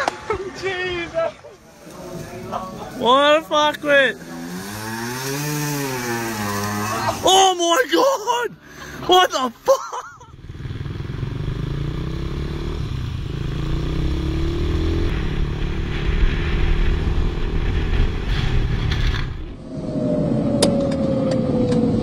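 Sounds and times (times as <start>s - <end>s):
wind and road noise: 0.0s - 7.8s, 10.2s - 22.0s
motorcycle engine running: 10.3s - 19.4s
car whine: 10.3s - 22.0s.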